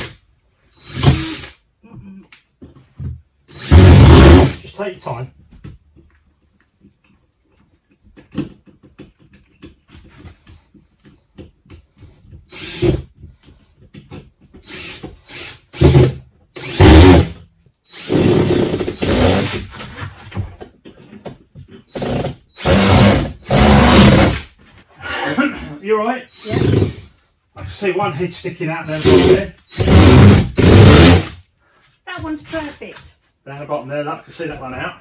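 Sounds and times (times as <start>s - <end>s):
cordless drill driving screws: 0.0s - 1.6s, 3.5s - 4.6s, 12.4s - 13.1s, 14.6s - 19.7s, 21.9s - 24.5s, 26.3s - 27.0s, 28.9s - 31.4s.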